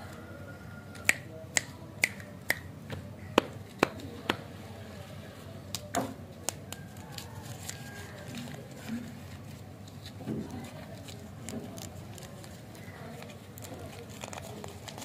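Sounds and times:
finger snaps: 0:01.0 - 0:02.7.

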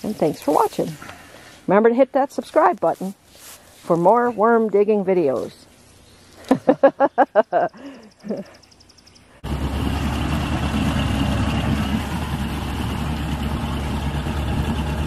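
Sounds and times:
boat motor running: 0:09.4 - 0:15.0.

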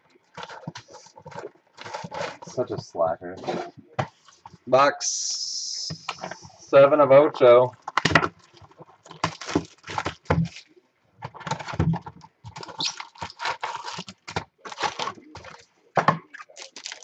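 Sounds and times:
cardboard rustling: 0:00.2 - 0:04.6, 0:07.5 - 0:17.0
packaging tearing: 0:07.9 - 0:10.7, 0:12.6 - 0:15.6, 0:16.4 - 0:17.0.

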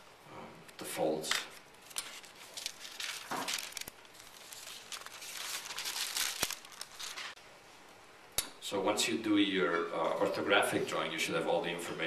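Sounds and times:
paper rustling and crinkling: 0:01.4 - 0:07.4.

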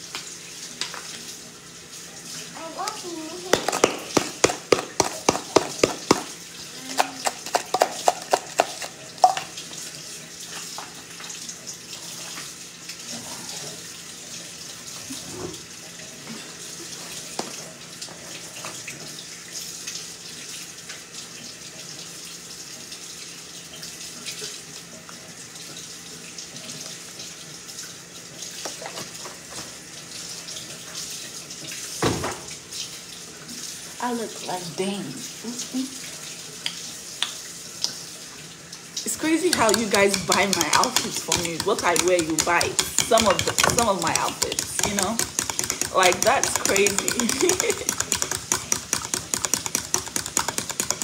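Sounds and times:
seasoning shaker rattling: 0:03.5 - 0:06.3, 0:07.0 - 0:09.5, 0:39.1 - 0:51.0.

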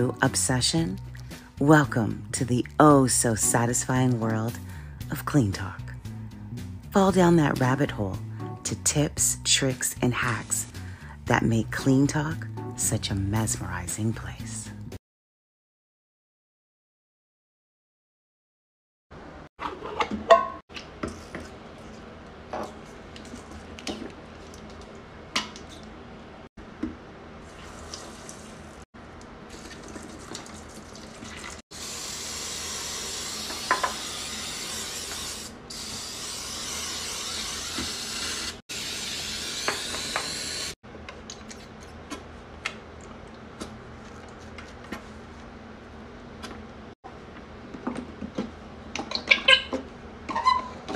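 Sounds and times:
liquid cleaner pouring hiss: 0:27.5 - 0:28.8.

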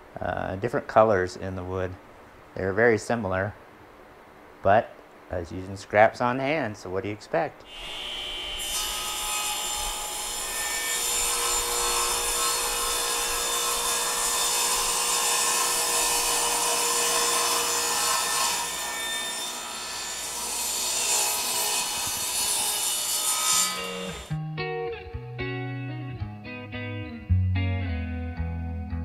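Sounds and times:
table saw cutting wood: 0:07.7 - 0:24.4.

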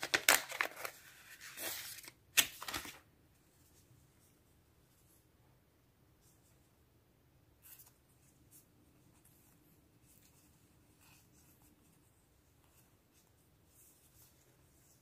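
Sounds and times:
paper stickers rustling: 0:00.0 - 0:03.0.

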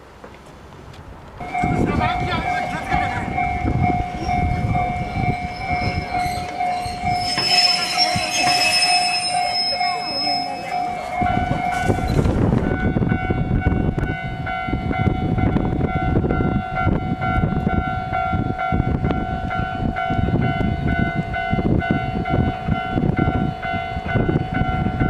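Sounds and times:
train rumble: 0:00.0 - 0:25.0
crowd chatter: 0:01.4 - 0:12.9
level-crossing warning bells: 0:01.4 - 0:25.0.

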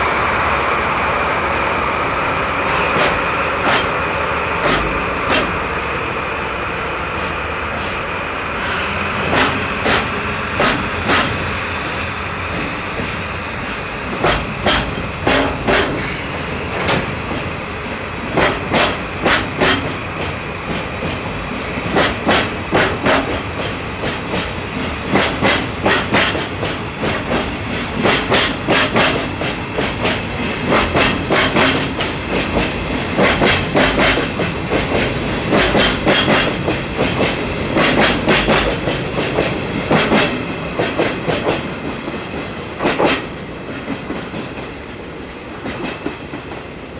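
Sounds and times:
diesel locomotives droning: 0:00.0 - 0:46.9
train wheels clattering over rail joints: 0:02.6 - 0:06.0, 0:07.2 - 0:17.6, 0:18.2 - 0:46.8.

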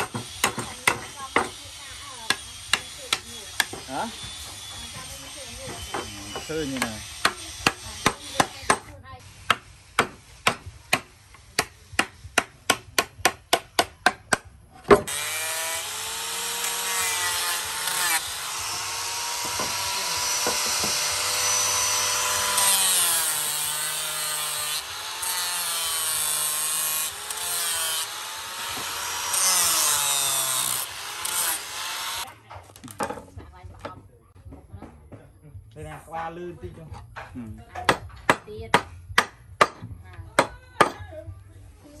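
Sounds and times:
hatchet chopping wood: 0:00.0 - 0:01.6, 0:02.2 - 0:04.4, 0:05.7 - 0:32.2, 0:37.2 - 0:41.0
angle grinder grinding wood: 0:00.0 - 0:08.9, 0:14.9 - 0:32.3.

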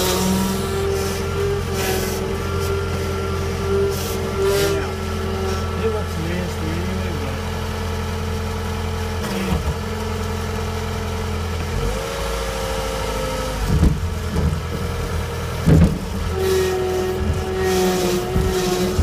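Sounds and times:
diesel engine running: 0:00.0 - 0:19.0
loud knocks: 0:13.6 - 0:16.4.

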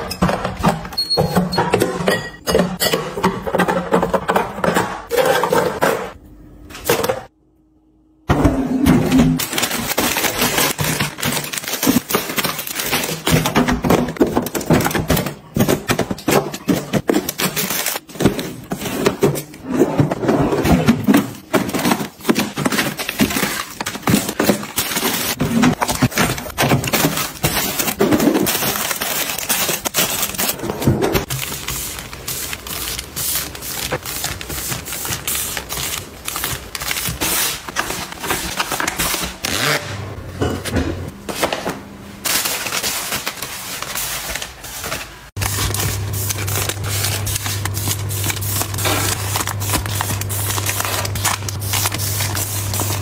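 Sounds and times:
plastic packaging crinkling: 0:09.4 - 0:19.6, 0:21.1 - 0:39.8, 0:42.2 - 0:53.0.

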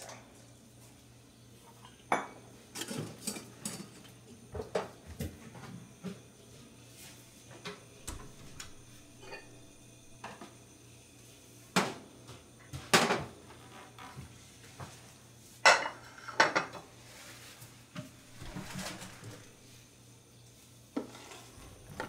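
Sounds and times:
dishes clinking on counter: 0:01.8 - 0:04.0, 0:08.1 - 0:10.4, 0:15.6 - 0:16.8.

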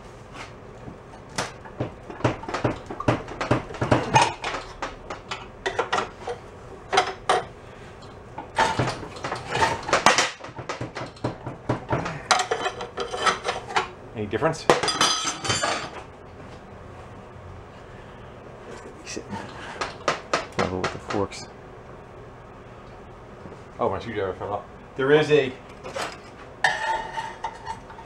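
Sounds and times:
metal clanks and rattles: 0:08.4 - 0:13.9, 0:14.8 - 0:16.1.

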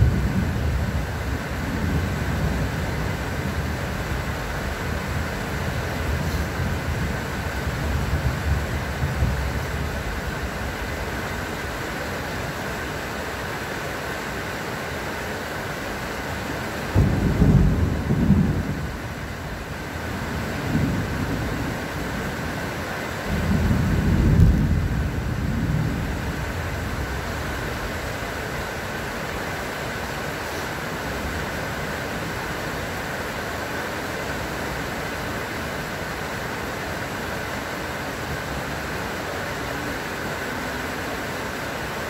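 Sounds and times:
thunder rumbling: 0:00.0 - 0:11.1, 0:16.9 - 0:22.6, 0:23.2 - 0:28.2
steady rain: 0:00.0 - 0:42.0.

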